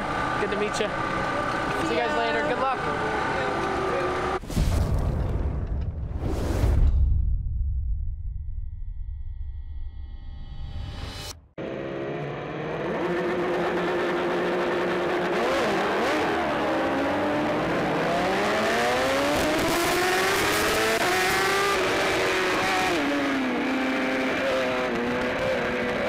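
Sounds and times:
racing motorcycle engines: 0:00.0 - 0:04.4, 0:11.6 - 0:26.0
motorcycle engine accelerating: 0:11.0 - 0:26.0.

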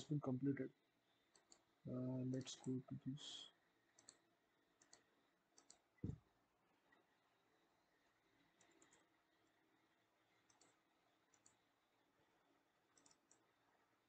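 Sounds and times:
computer mouse clicks: 0:01.3 - 0:01.7, 0:03.9 - 0:06.2, 0:08.5 - 0:09.6, 0:10.4 - 0:11.7, 0:12.9 - 0:13.6.

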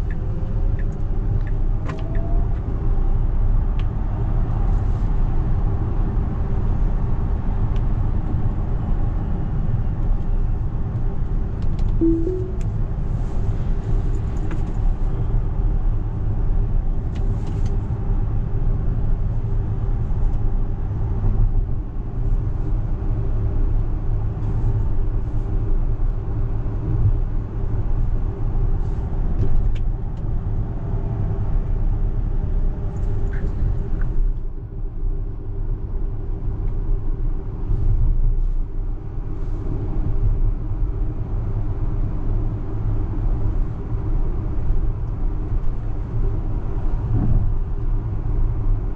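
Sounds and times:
two-note chime: 0:12.0 - 0:12.8.

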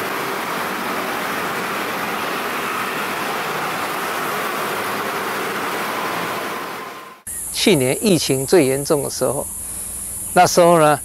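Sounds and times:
scooter engines droning: 0:00.0 - 0:07.3.

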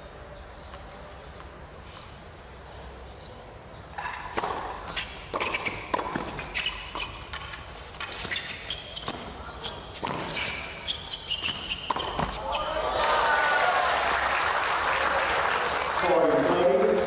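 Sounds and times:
tennis ball struck by rackets: 0:04.0 - 0:12.4
tennis ball bouncing on hard court: 0:04.0 - 0:12.5.

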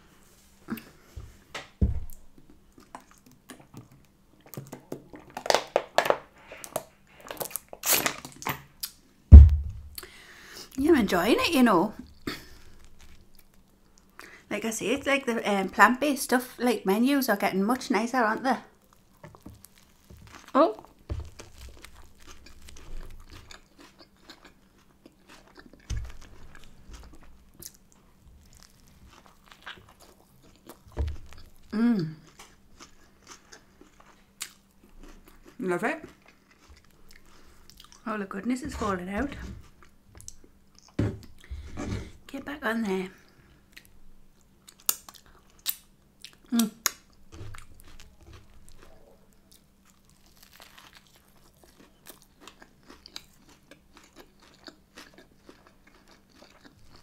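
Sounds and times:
bottle set down thump: 0:09.3 - 0:09.9
chewing and biting crunches: 0:18.9 - 0:38.0, 0:44.6 - 0:57.0
plastic bottle crinkling: 0:19.2 - 0:23.2.

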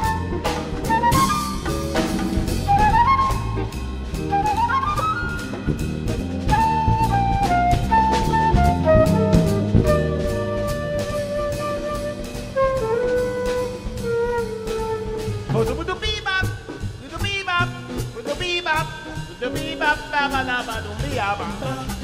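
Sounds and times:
flute solo: 0:00.0 - 0:16.0
drum kit: 0:00.0 - 0:22.0
jazz band backing: 0:00.0 - 0:22.0.

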